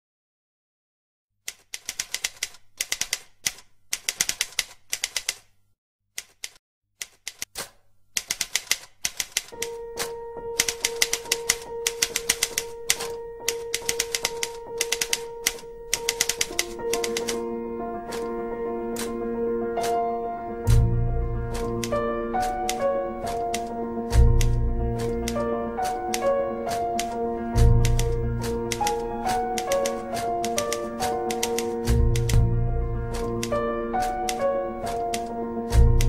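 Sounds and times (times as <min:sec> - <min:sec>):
electronic typewriter keystroke clatter: 0:01.5 - 0:05.5, 0:06.2 - 0:17.4, 0:18.1 - 0:18.4, 0:19.8 - 0:20.0, 0:21.5 - 0:32.4, 0:33.1 - 0:36.0
sustained musical note: 0:17.3 - 0:34.8.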